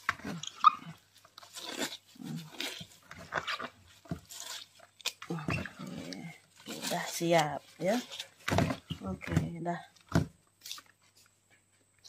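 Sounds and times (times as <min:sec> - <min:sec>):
wet leaves squelching by hand: 0:00.3 - 0:08.4.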